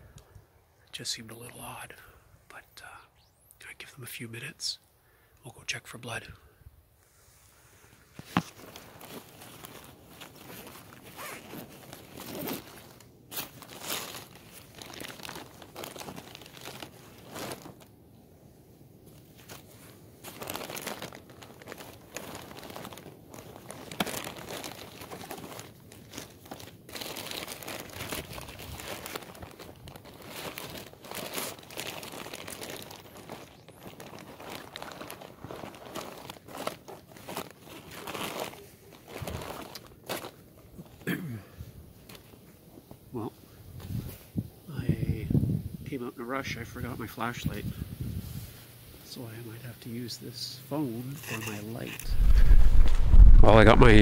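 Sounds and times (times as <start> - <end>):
clothing fabric rustling: 7.2 - 17.9, 52.0 - 54.0.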